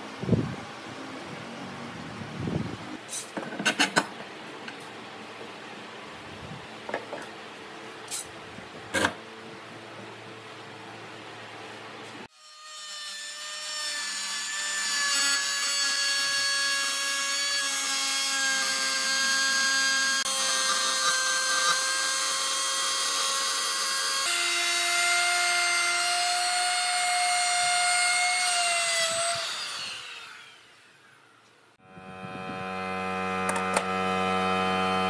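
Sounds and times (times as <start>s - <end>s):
electric router cutting wood: 12.5s - 31.2s, 31.8s - 35.0s.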